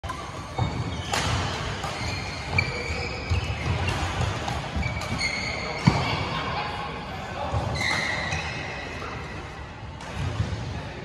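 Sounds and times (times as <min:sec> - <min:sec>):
racket hitting shuttlecock: 0:00.0 - 0:06.0
shoes squeaking on court: 0:00.0 - 0:06.1, 0:07.6 - 0:09.4.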